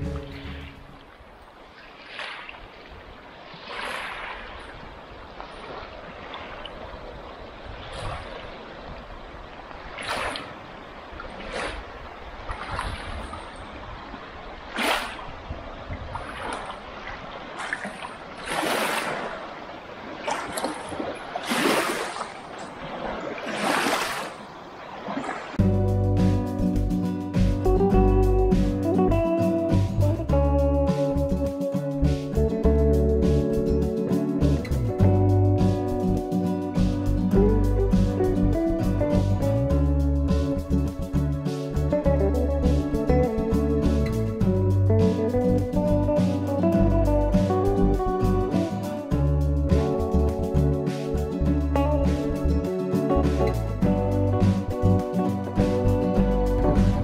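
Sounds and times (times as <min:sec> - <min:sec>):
small waves lapping on rocks: 0:00.4 - 0:25.6.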